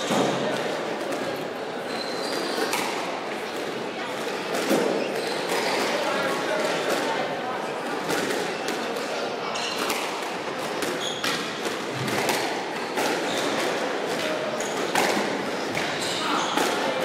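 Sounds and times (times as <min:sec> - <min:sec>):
squash ball hitting racquets and walls: 0:00.0 - 0:17.0
shoes squeaking on wooden floor: 0:01.8 - 0:02.7, 0:04.9 - 0:05.9, 0:10.9 - 0:11.4.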